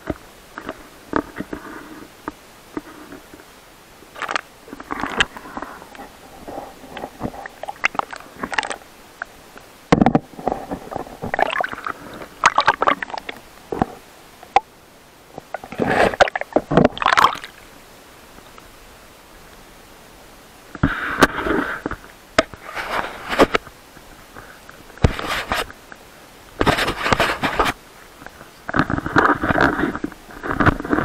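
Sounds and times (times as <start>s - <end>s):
water sloshing and gurgling: 4.0s - 14.7s, 15.3s - 17.7s
water splashes: 4.1s - 14.7s, 15.3s - 17.8s.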